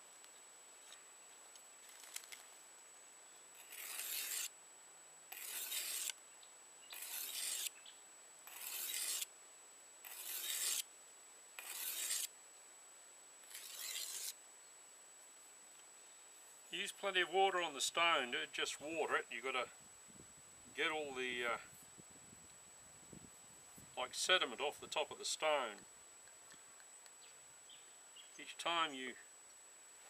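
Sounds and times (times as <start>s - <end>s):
knife scraping on whetstone: 3.6s - 4.5s, 5.3s - 6.2s, 6.9s - 7.7s, 8.4s - 9.3s, 10.0s - 10.9s, 11.6s - 12.3s, 13.4s - 14.4s.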